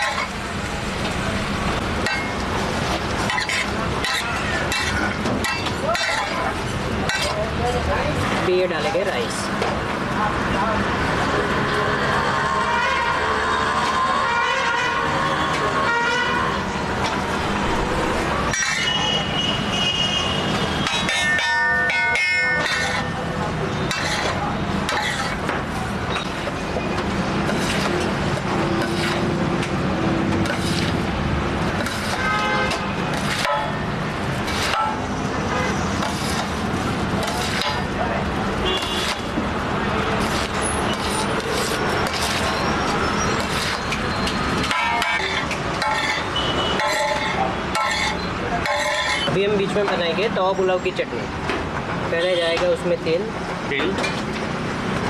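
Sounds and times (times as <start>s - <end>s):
steel spatulas scraping a griddle: 0.0s - 0.4s, 2.0s - 7.4s, 17.6s - 19.4s, 20.5s - 23.2s, 23.8s - 25.5s, 27.4s - 29.4s, 30.3s - 31.0s, 31.6s - 38.0s, 38.7s - 39.4s, 40.1s - 49.4s
street traffic din: 0.0s - 55.0s
vehicle horns honking: 12.6s - 16.6s, 18.5s - 23.2s, 32.0s - 33.9s, 38.6s - 39.4s, 44.6s - 49.4s
short metallic rings: 18.5s - 19.3s, 20.8s - 23.2s, 44.6s - 49.3s.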